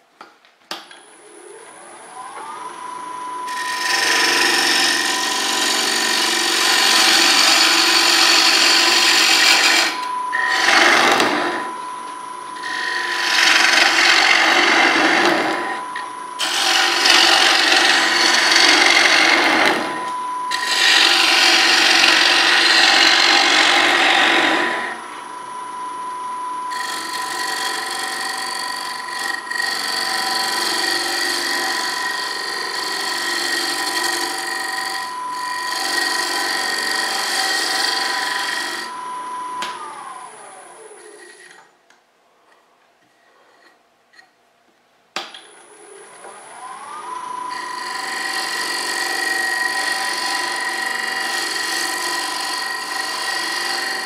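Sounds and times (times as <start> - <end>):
lathe motor whine: 1.0 - 41.6, 45.4 - 54.0
gouge cutting wooden bowl: 3.5 - 11.8, 12.6 - 25.0, 26.7 - 39.0, 47.5 - 54.0.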